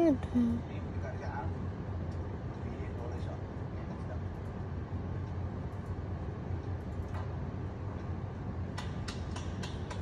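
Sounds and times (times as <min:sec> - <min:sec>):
steady low hum: 0:00.0 - 0:10.0
sharp clicks: 0:08.7 - 0:10.0.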